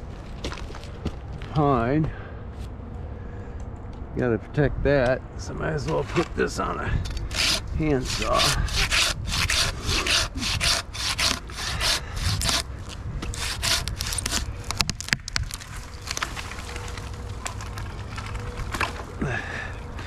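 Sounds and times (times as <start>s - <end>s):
hand saw cutting wood: 7.3s - 12.7s, 13.3s - 14.5s.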